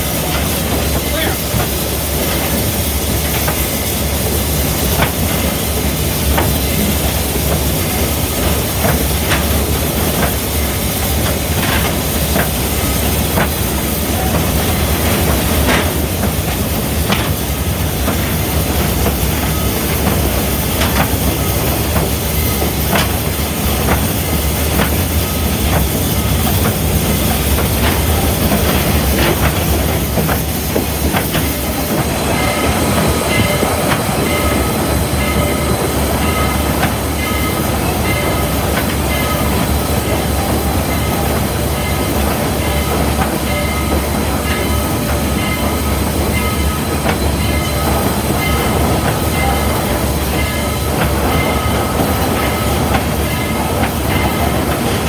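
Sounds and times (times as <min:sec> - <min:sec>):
steam locomotive running: 0:00.0 - 0:55.0
sharp clicks and clanks: 0:04.8 - 0:05.6, 0:11.2 - 0:34.6.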